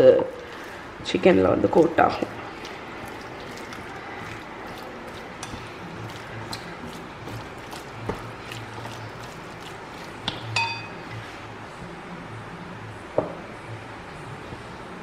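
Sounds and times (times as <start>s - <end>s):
wet squishing of stirred food: 0.0s - 11.5s.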